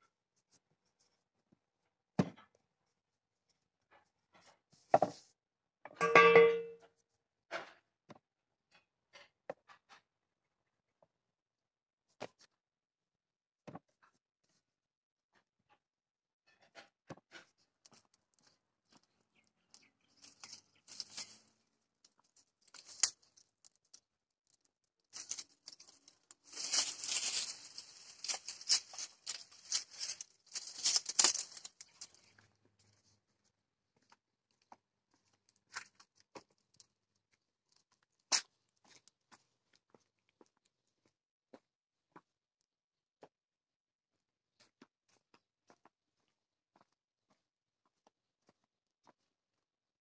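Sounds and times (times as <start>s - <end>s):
brushwood crackling and rustling: 19.8s - 21.5s, 22.6s - 24.0s, 24.6s - 32.5s.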